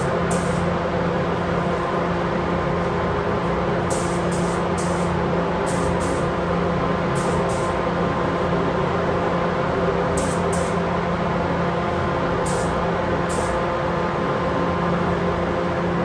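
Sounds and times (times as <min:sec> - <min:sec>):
spray gun hissing: 0:00.0 - 0:00.6, 0:03.9 - 0:05.1, 0:05.7 - 0:06.3, 0:07.2 - 0:07.7, 0:12.5 - 0:12.7, 0:13.3 - 0:13.5
ventilation hum: 0:00.0 - 0:16.0.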